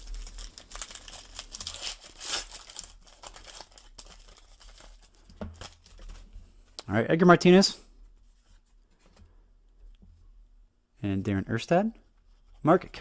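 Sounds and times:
wrapper crinkling and tearing: 0:00.0 - 0:05.9.

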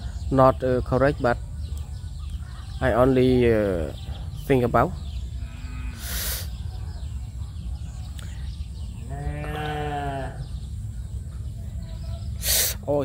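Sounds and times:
drawn-out animal call: 0:08.8 - 0:10.8
brief hiss: 0:12.4 - 0:12.8.

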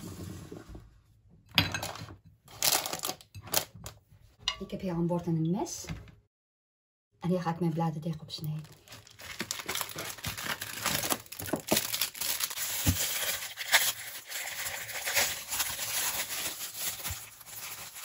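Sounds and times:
plastic wrapping crinkling: 0:02.5 - 0:03.7, 0:08.5 - 0:18.0.

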